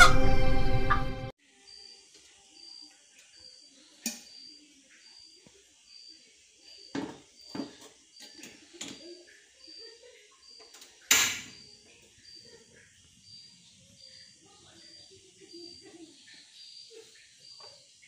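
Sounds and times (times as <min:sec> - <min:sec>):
gas burner lighting rush: 0:02.1 - 0:09.6, 0:10.6 - 0:13.0
kettle clunking on stove grate: 0:06.9 - 0:09.0, 0:11.1 - 0:11.6.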